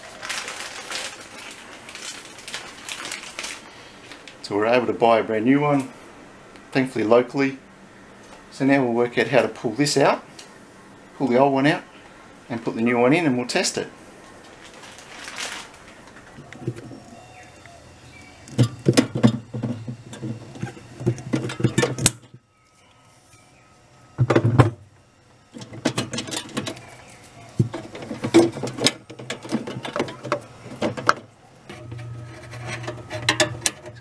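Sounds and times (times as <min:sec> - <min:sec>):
clicks and rattles of wire connectors: 0:25.6 - 0:26.8, 0:27.6 - 0:34.0.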